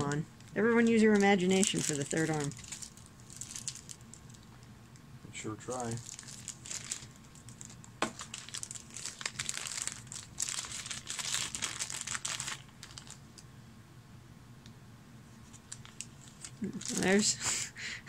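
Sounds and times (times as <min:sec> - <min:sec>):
plastic bag crinkling: 0:00.0 - 0:04.6, 0:05.7 - 0:13.4, 0:15.4 - 0:17.3.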